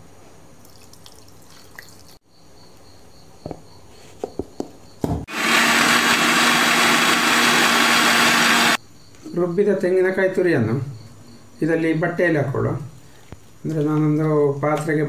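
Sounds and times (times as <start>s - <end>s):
electric mixer grinder running: 5.3s - 8.8s.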